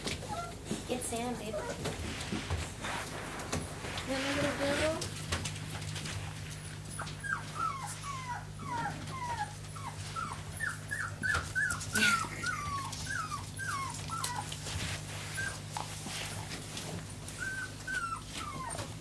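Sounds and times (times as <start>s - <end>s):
puppy whimpering: 0.0s - 1.9s, 6.6s - 19.0s
steady low hum: 0.0s - 19.0s.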